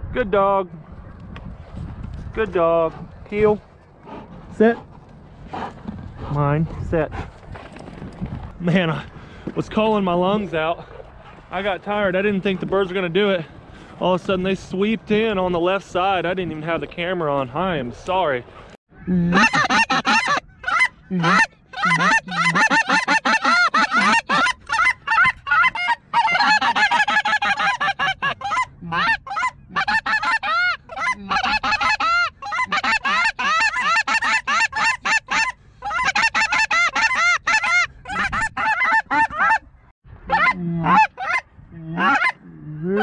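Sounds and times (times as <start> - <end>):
snow geese honking: 19.4 - 39.7, 42.0 - 42.4.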